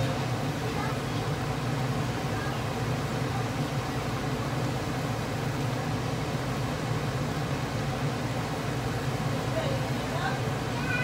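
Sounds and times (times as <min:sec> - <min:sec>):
steady low hum: 0:00.0 - 0:10.8
food frying hiss: 0:00.0 - 0:11.0.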